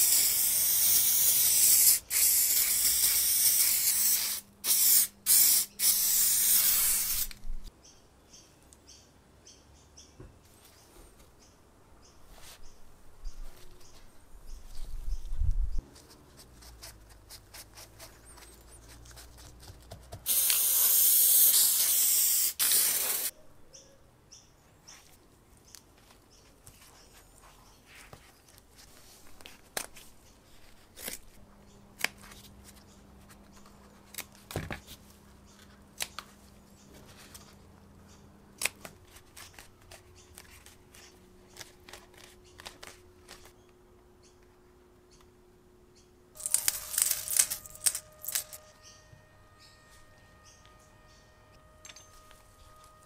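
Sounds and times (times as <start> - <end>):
loud spray hiss: 0.0 - 7.4, 20.3 - 23.3.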